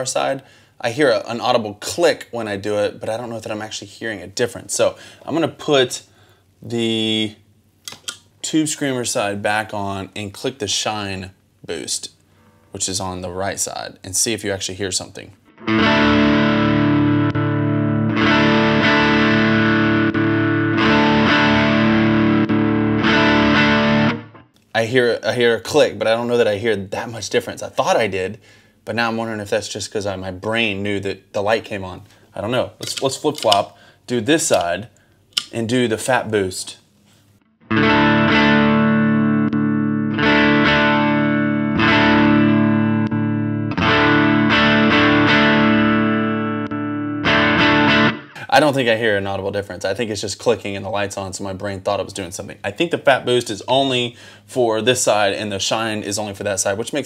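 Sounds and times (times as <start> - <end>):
overdriven electric guitar chords: 15.4 - 24.5, 37.6 - 48.4.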